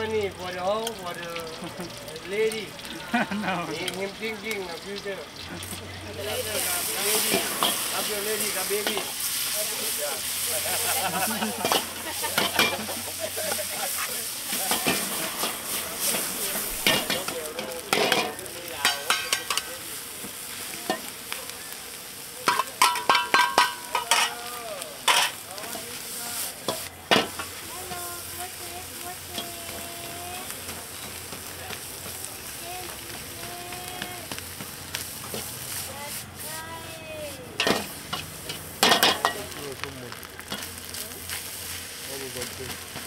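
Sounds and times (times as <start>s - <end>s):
food sizzling in a pan: 0.0s - 43.0s
metal spatula clanking and scraping: 7.0s - 8.2s, 8.8s - 9.1s, 10.7s - 13.0s, 14.5s - 19.7s, 22.5s - 24.4s, 25.0s - 25.8s, 37.6s - 39.6s.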